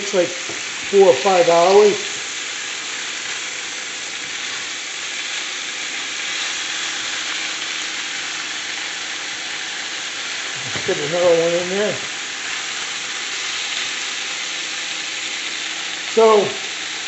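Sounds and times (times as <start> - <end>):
chicken sizzling in a skillet: 0.0 - 17.0.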